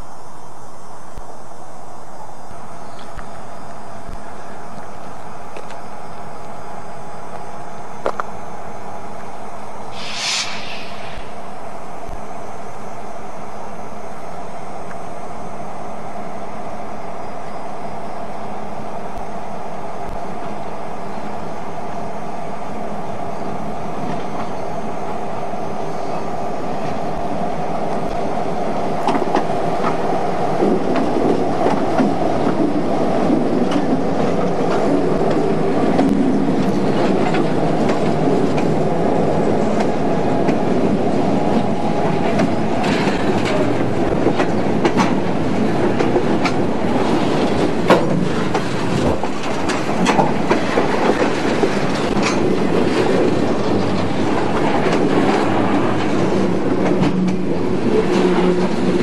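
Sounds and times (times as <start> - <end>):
train wheels clacking on rail joints: 41.5 - 59.0.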